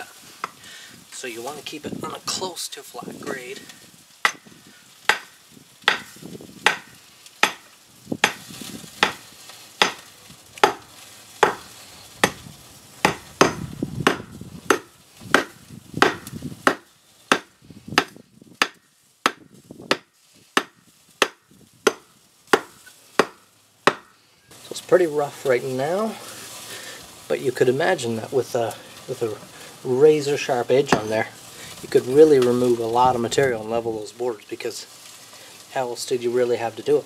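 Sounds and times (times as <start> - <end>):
wood chips scraping: 0.0 - 37.0
adze chopping wooden beam: 4.2 - 9.2, 9.8 - 12.4, 13.0 - 24.1.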